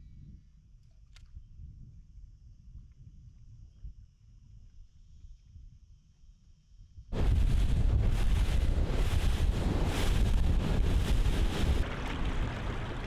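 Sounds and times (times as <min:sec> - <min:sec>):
faint low rumble: 0:07.1 - 0:13.0
wind buffeting microphone: 0:07.1 - 0:13.0
boat running fast over water: 0:07.2 - 0:13.0.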